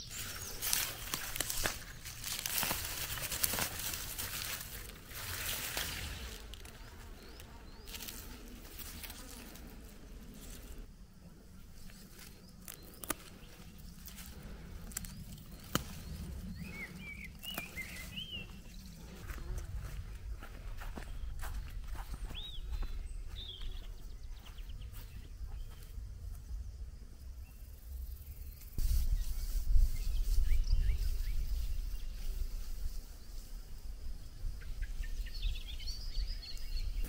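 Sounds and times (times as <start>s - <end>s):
insects buzzing: 0.0s - 37.0s.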